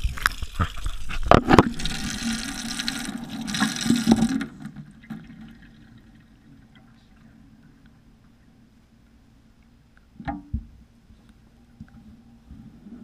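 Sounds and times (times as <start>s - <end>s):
tap water rushing and splashing: 0.0s - 5.6s.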